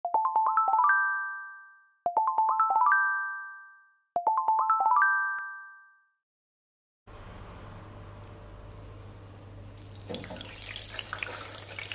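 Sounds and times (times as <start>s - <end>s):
bell-like chime jingle: 0.1s - 6.1s.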